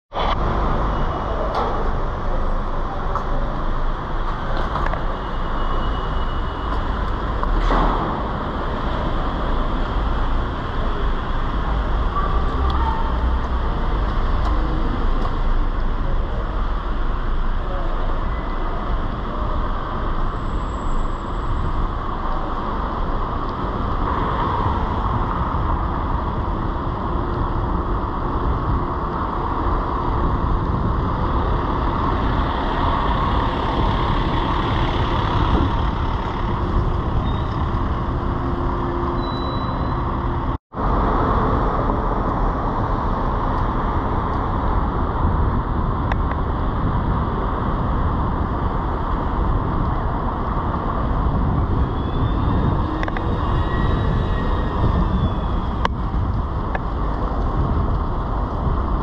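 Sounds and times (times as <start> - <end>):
road traffic: 0.1 - 59.0
wind on microphone: 21.5 - 59.0.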